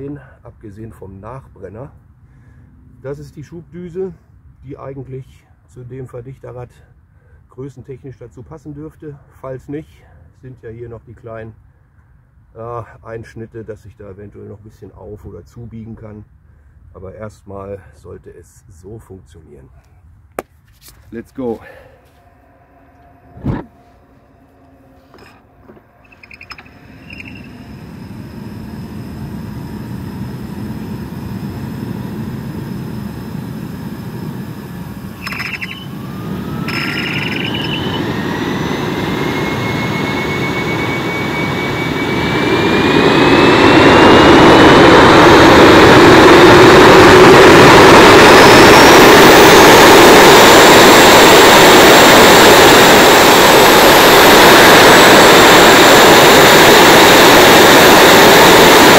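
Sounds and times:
jet engine spooling up: 0:21.4 - 0:58.9
sharp clicks: 0:35.2 - 0:35.8.

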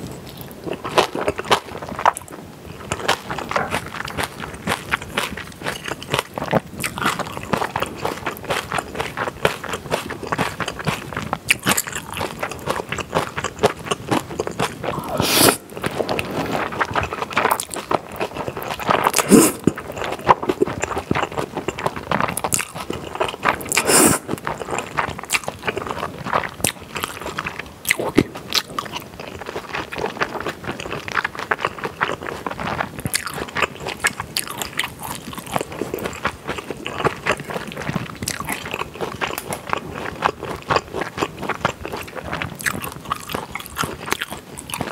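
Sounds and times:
wet chewing: 0:00.4 - 0:44.9
noodles slurped: 0:13.0 - 0:21.3, 0:23.0 - 0:24.8.

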